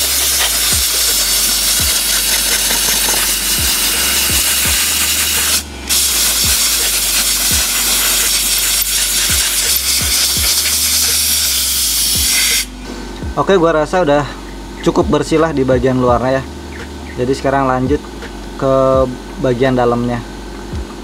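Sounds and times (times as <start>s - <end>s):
compressed air hissing: 0.0s - 13.1s.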